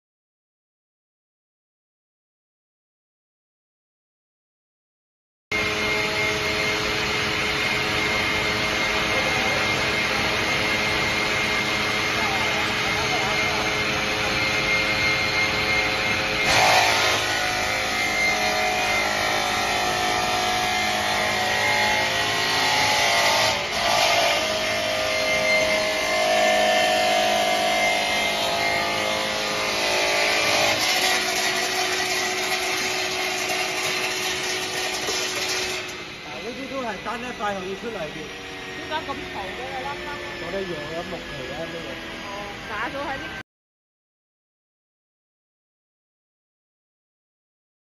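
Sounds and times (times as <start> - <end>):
saw running with high whine: 5.5 - 43.4.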